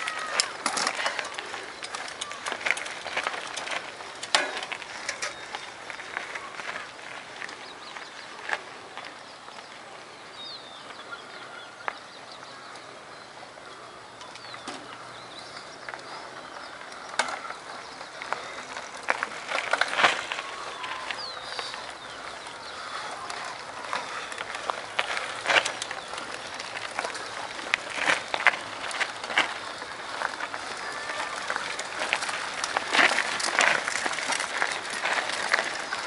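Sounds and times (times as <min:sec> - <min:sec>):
bike tyres clattering on stones: 0:00.0 - 0:09.2, 0:14.2 - 0:36.0
bird chirping: 0:05.0 - 0:19.2, 0:20.4 - 0:28.3.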